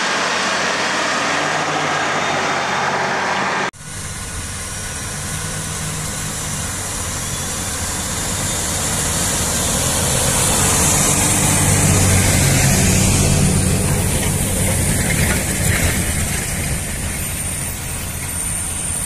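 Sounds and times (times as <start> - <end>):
tractor diesel engine under load: 0.0 - 19.0.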